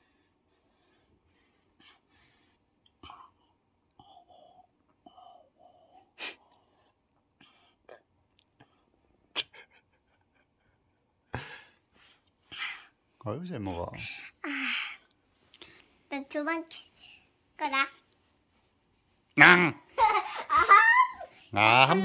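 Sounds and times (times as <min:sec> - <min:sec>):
child breathing: 0:00.0 - 0:02.6, 0:04.0 - 0:07.8, 0:11.4 - 0:13.0, 0:14.0 - 0:16.1, 0:16.8 - 0:17.4.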